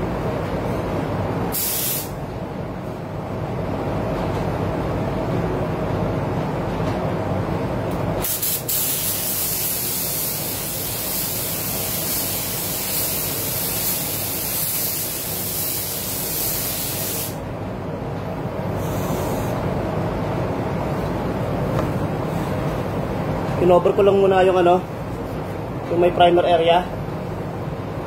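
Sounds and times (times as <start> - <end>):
ventilation rumble: 0.0 - 28.0
spray gun hissing: 1.5 - 2.1, 8.2 - 17.4.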